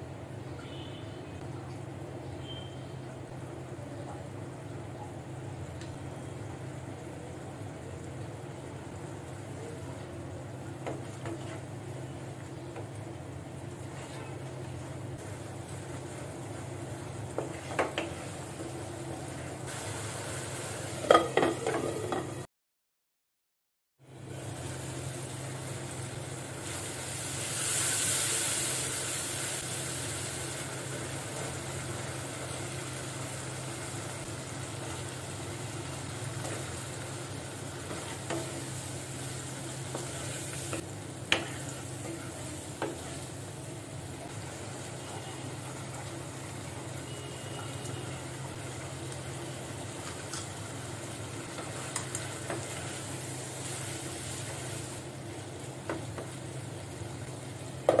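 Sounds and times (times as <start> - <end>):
vegetables sizzling in oil: 2.3 - 22.4, 24.1 - 58.0
spatula stirring in wok: 36.3 - 43.4.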